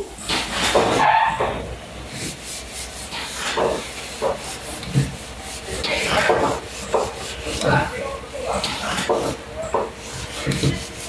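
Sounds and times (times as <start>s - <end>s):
rasping rubbing noise: 8.6s - 11.0s.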